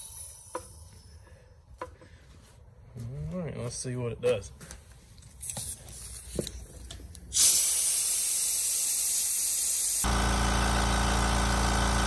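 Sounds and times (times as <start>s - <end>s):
air hissing: 7.3s - 10.1s
air compressor motor hum: 7.4s - 12.0s.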